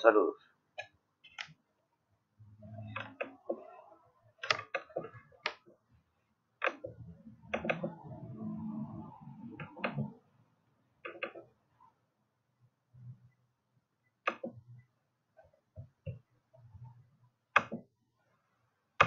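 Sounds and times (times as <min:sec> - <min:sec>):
computer mouse clicks: 0:04.4 - 0:05.6, 0:06.6 - 0:08.0, 0:14.2 - 0:14.6
low rumble: 0:07.0 - 0:10.2.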